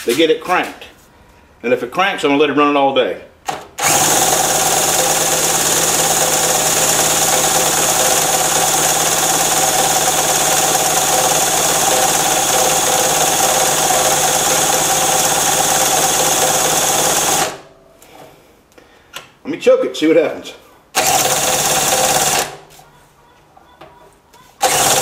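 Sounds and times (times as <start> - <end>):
drill whirring: 3.5 - 17.6, 21.0 - 22.6, 24.6 - 25.0.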